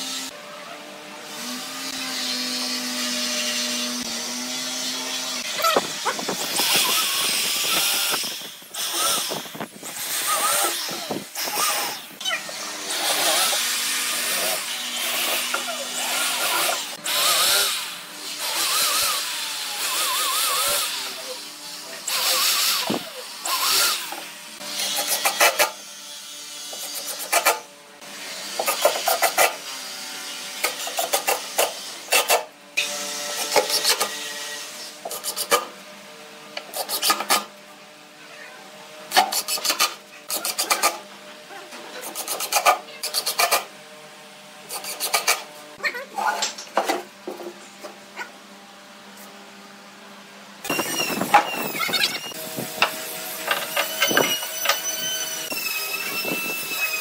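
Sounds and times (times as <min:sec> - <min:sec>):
drill driving screws into wood: 0:01.3 - 0:21.2, 0:22.1 - 0:25.8, 0:26.7 - 0:27.6, 0:28.3 - 0:29.8, 0:30.6 - 0:35.7, 0:36.6 - 0:37.5, 0:39.1 - 0:41.0, 0:42.0 - 0:43.7, 0:44.7 - 0:45.5, 0:50.6 - 0:57.0.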